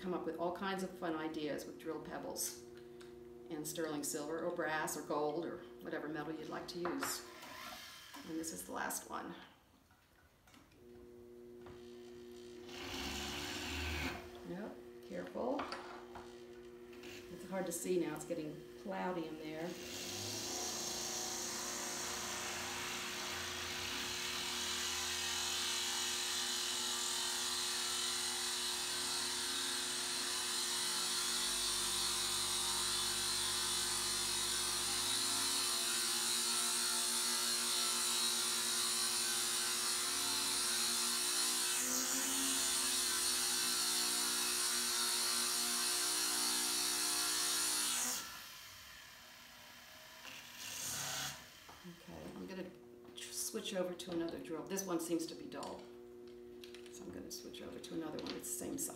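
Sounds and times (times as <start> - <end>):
rotary tool grinding stone: 19.7 - 52.0.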